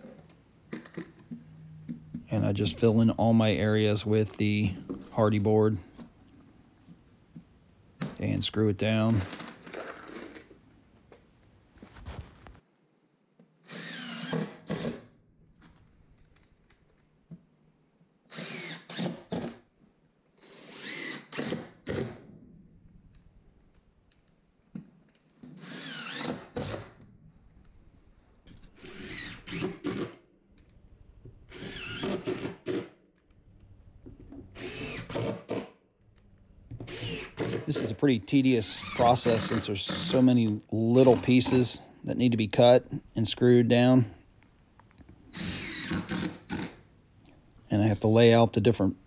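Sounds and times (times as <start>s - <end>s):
power drill driving screws: 13.6s - 15.1s, 18.3s - 19.6s, 20.4s - 22.2s, 25.4s - 27.0s, 28.6s - 30.2s, 31.5s - 33.0s, 34.5s - 35.8s, 36.8s - 38.0s, 38.7s - 40.3s, 45.3s - 46.8s.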